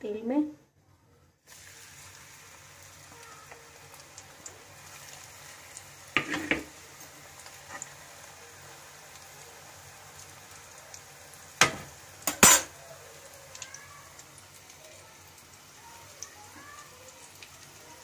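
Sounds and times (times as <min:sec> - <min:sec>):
potatoes sizzling in hot oil: 0:01.4 - 0:18.0
metal spatula clanking on pan: 0:06.2 - 0:06.7, 0:11.6 - 0:12.8.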